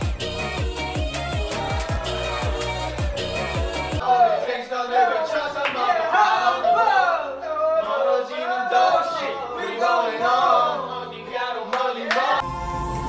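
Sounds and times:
background music: 0.0s - 4.0s, 9.2s - 13.0s
young men singing together: 1.0s - 4.1s, 7.9s - 12.4s.

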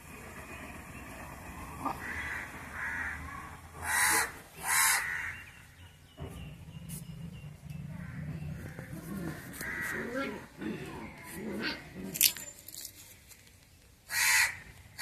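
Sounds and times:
crow cawing: 2.0s - 5.4s, 9.6s - 10.1s, 14.1s - 14.6s.

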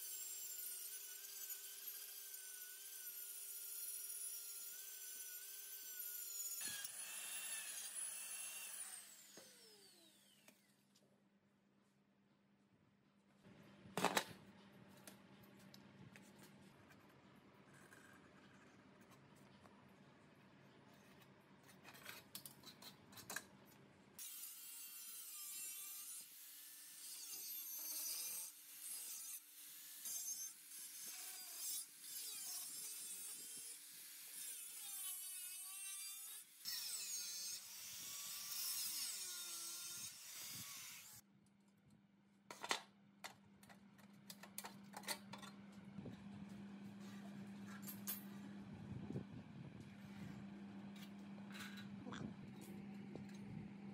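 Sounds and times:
angle grinder cutting metal: 0.0s - 10.6s, 24.2s - 41.2s.

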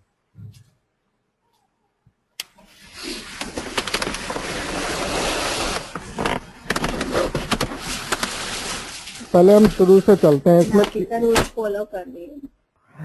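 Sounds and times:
scattered crackles: 2.8s - 12.0s.

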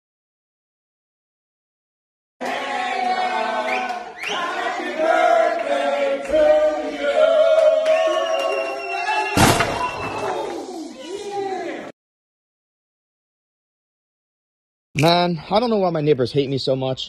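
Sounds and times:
voices singing in chorus: 2.4s - 9.4s
loud thud: 9.3s - 10.3s.

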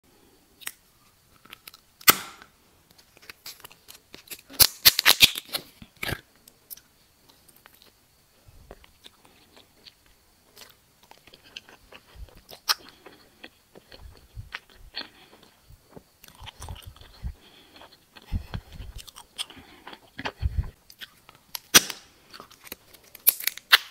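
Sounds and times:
plastic wrapper tearing: 3.1s - 6.2s, 21.5s - 23.9s
gummy candy being bitten: 3.2s - 6.9s, 8.7s - 23.9s
wet chewing: 8.7s - 23.9s.

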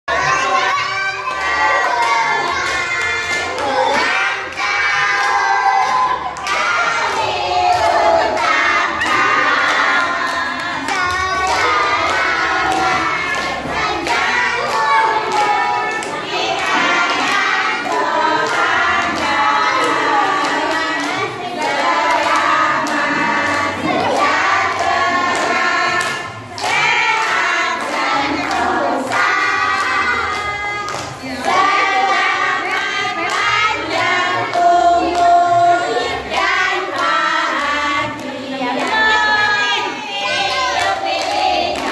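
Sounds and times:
children and women singing: 0.1s - 41.9s
hands clapping: 1.3s - 35.3s.

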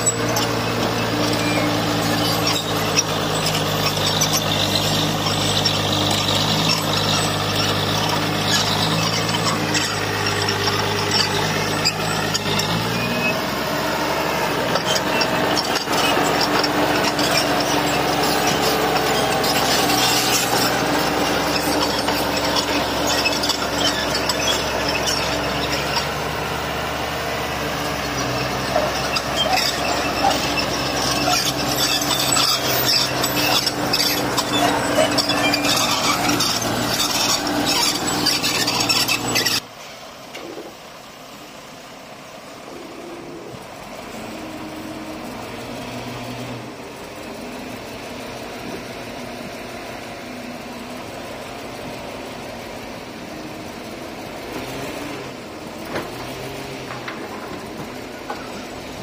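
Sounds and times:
tracks and blade clanking: 0.0s - 26.4s, 27.7s - 40.8s
bulldozer engine running: 0.0s - 59.0s.

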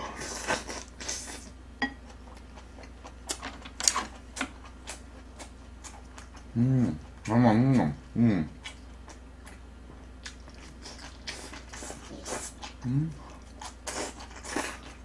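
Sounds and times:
person humming mmm: 6.5s - 8.6s, 12.3s - 13.3s.

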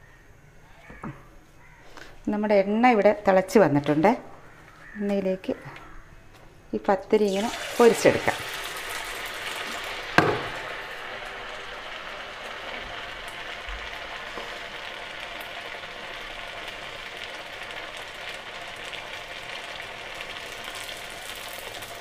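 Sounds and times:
flatbread sizzling in hot oil: 7.2s - 22.0s.

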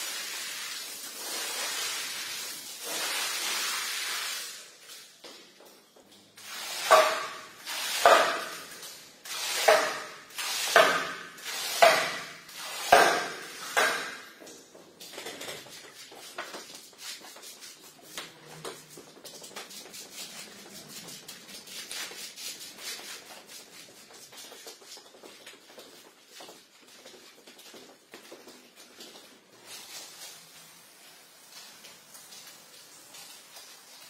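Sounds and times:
squeegee swishing through wet carpet: 0.0s - 5.2s, 15.7s - 34.0s
crackling patter of water: 0.0s - 34.0s.

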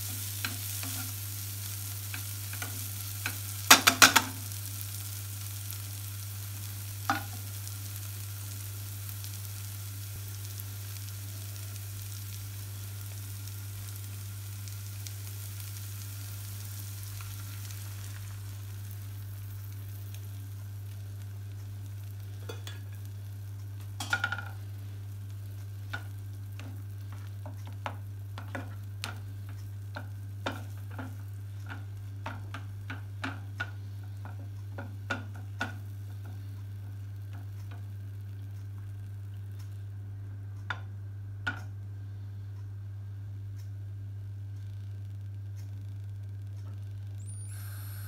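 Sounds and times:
spatula stirring and scraping pan: 0.0s - 5.1s, 25.4s - 37.8s
egg sizzling in a frying pan: 0.0s - 40.0s, 44.6s - 48.0s
steady low hum: 0.0s - 48.0s.

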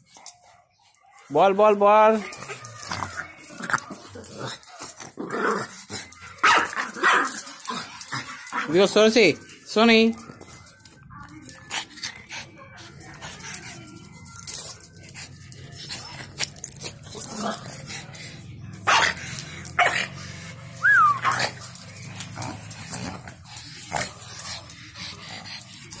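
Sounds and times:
dog barking: 18.9s - 19.2s.

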